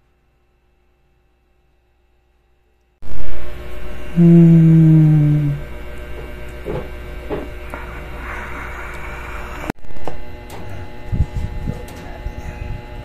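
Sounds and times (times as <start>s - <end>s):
steady background hum: 0.0s - 13.0s
person humming low: 4.0s - 5.8s.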